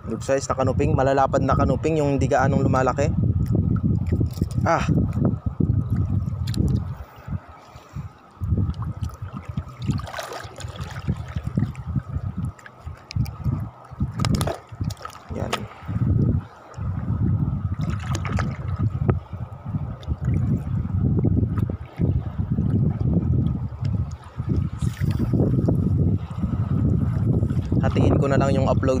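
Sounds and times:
wind buffeting microphone: 0.0s - 29.0s
seawater lapping: 5.8s - 29.0s.

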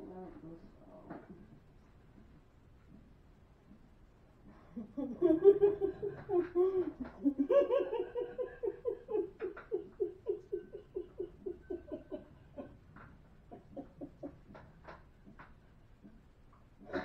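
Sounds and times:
person laughing rhythmically: 4.6s - 14.7s.

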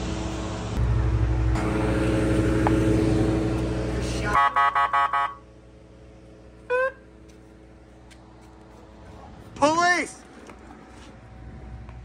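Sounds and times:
generator engine humming: 0.0s - 12.0s.

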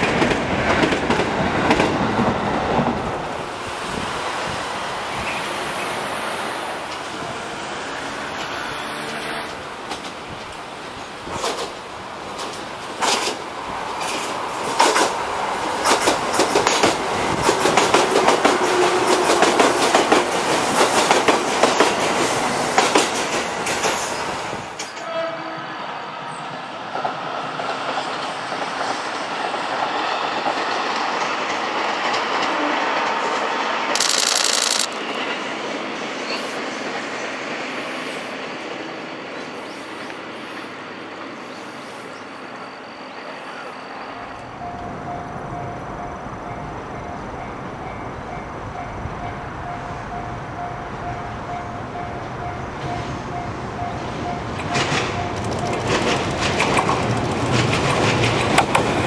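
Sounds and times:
train wheels clicking over rail joints: 9.1s - 13.4s, 14.0s - 15.2s, 15.8s - 24.0s, 34.0s - 35.0s, 53.9s - 59.0s
distant train rumble: 44.0s - 59.0s.

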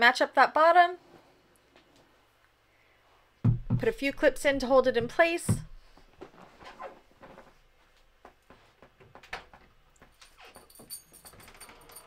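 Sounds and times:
vinyl rustling: 5.2s - 10.4s.

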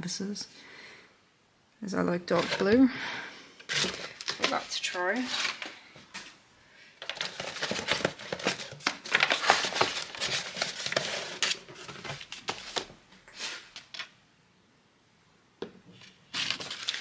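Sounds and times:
paper and cardboard rustling: 2.3s - 2.9s, 3.7s - 6.4s, 7.0s - 14.1s, 16.0s - 17.0s.

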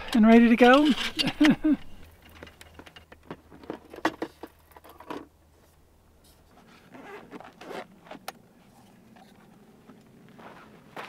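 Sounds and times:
fabric rustling and zipping: 6.7s - 8.2s.

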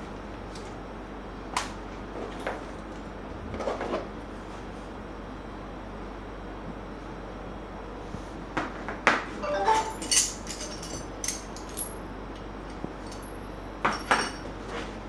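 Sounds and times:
metal shackles clinking: 9.6s - 12.0s, 13.0s - 13.4s.

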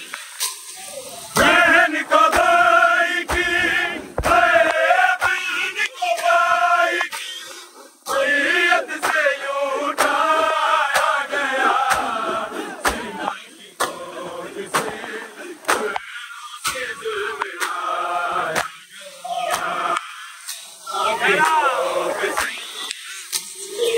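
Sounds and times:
crowd of men chanting: 1.3s - 23.2s
hands slapping chests: 3.3s - 3.6s, 4.2s - 5.5s, 9.0s - 9.3s, 10.0s - 10.2s, 10.9s - 11.2s, 11.8s - 12.2s, 12.8s - 13.2s, 13.8s - 14.0s, 14.7s - 16.8s, 18.5s - 18.8s.

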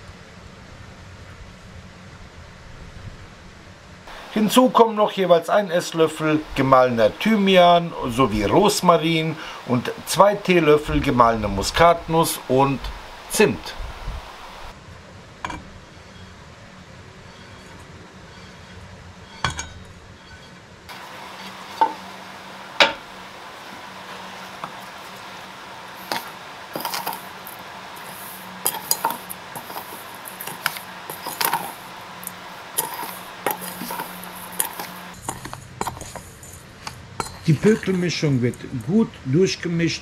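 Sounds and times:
spoon scraping metal bowl: 17.2s - 23.1s, 23.8s - 37.5s.

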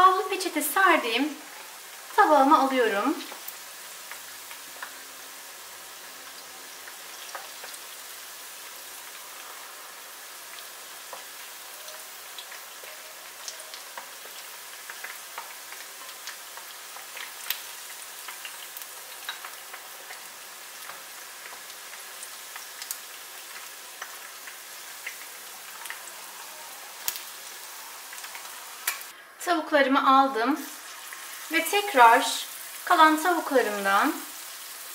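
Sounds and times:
oil sizzling with pops: 0.1s - 29.1s, 30.5s - 34.9s.

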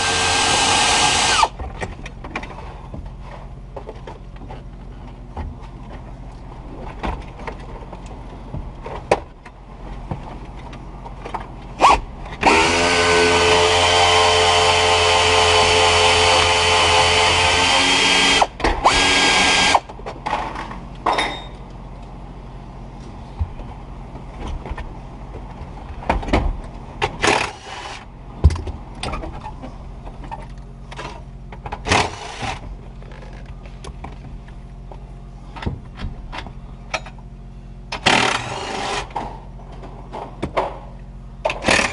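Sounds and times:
power driver running: 0.0s - 1.6s, 11.8s - 19.9s, 31.8s - 32.7s, 37.9s - 39.2s, 41.5s - 41.9s.

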